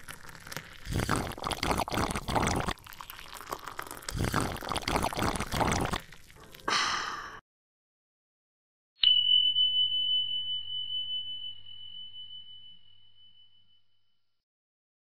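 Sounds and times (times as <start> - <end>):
liquid pouring into a glass: 0.0 - 6.7.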